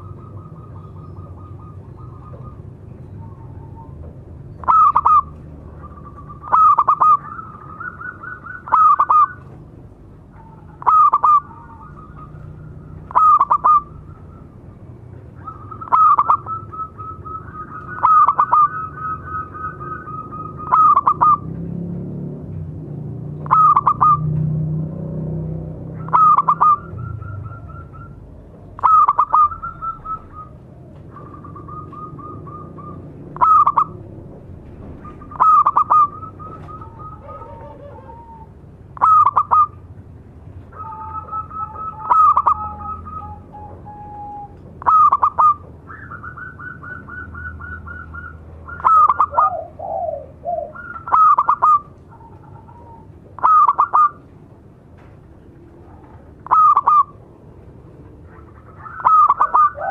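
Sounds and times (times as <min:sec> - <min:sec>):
dove staccato call: 0:00.0 - 0:21.8, 0:23.4 - 0:24.5, 0:25.8 - 0:54.6, 0:55.8 - 0:57.4, 0:58.0 - 0:59.9
soft trilling coos: 0:35.4 - 0:39.8, 0:58.8 - 0:59.9.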